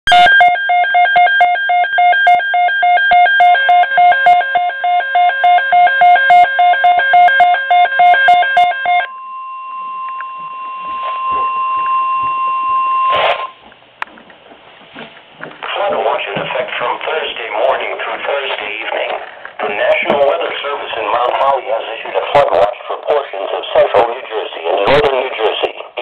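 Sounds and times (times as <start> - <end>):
steady alarm tone: 0.1 - 13.6.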